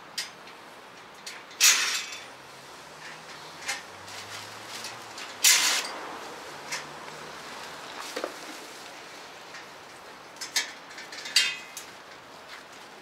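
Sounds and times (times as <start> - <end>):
plastic rustling: 3.6 - 5.9.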